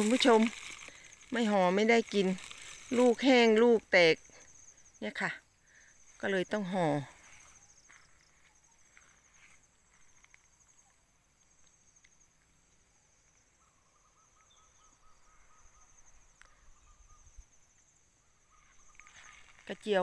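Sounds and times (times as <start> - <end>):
crickets chirring: 0.0 - 20.0.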